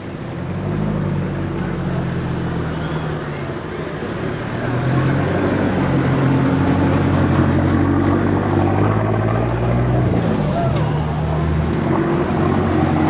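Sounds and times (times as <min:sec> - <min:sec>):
engine humming: 0:00.0 - 0:13.0.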